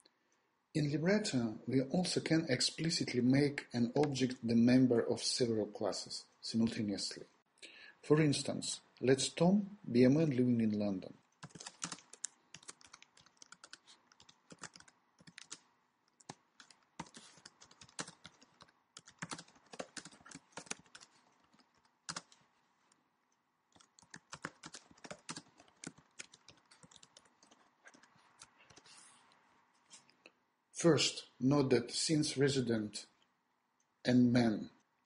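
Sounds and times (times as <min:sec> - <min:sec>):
typing on computer keyboard: 0:11.4 - 0:22.4, 0:23.7 - 0:28.9.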